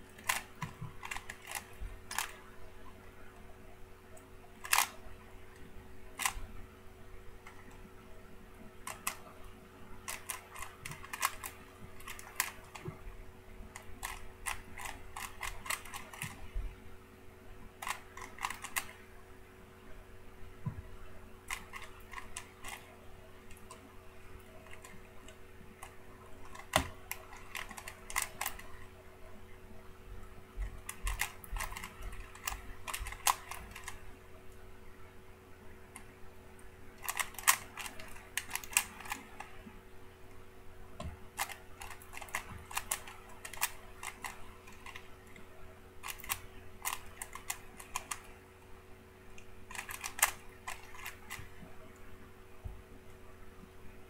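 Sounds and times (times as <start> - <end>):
rapid plastic clicks of puzzle cube: 0.0 - 2.6, 4.1 - 6.5, 8.8 - 13.1, 13.7 - 16.7, 17.8 - 19.0, 21.4 - 29.0, 30.6 - 34.1, 37.0 - 39.7, 41.0 - 48.4, 49.4 - 51.8
steady faint hum: 0.0 - 54.0.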